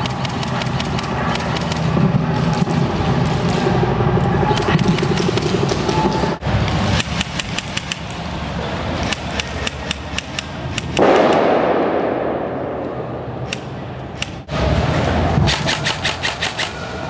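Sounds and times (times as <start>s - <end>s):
airsoft gun shots: 10.8s - 12.9s.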